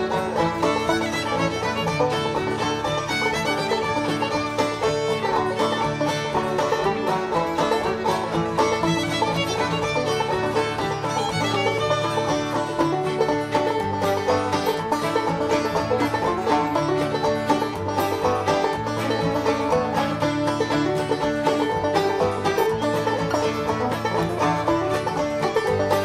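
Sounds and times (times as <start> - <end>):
bluegrass banjo and fiddle music: 0.0 - 26.0.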